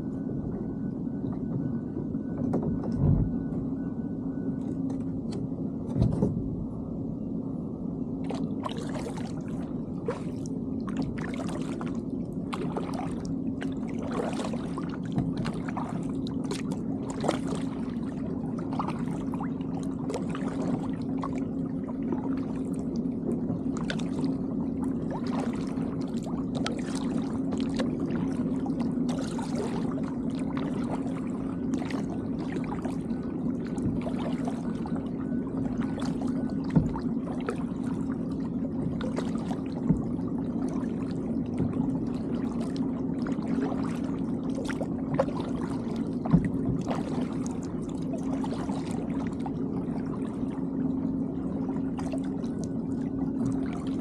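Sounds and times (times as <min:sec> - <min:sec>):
steady low hum: 0:00.0 - 0:54.0
kayak paddle splashing water: 0:08.3 - 0:22.8, 0:23.7 - 0:50.5.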